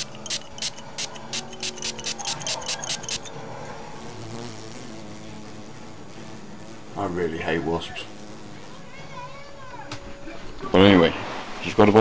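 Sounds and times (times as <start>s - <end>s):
spray bottle hissing: 0.0s - 3.4s.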